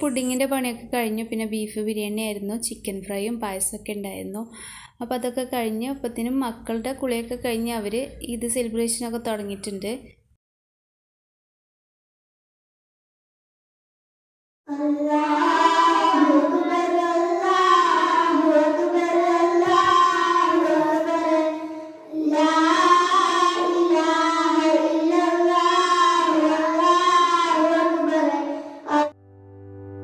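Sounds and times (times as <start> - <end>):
child singing into a microphone: 14.7 - 29.1.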